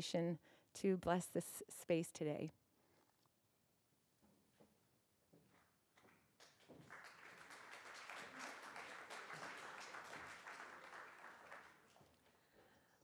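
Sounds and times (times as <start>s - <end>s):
audience applauding: 6.4s - 12.3s.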